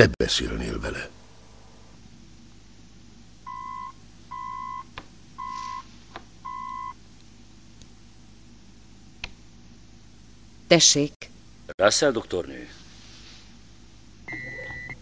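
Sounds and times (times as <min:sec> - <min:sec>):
short electronic beeps: 0:05.4 - 0:05.9.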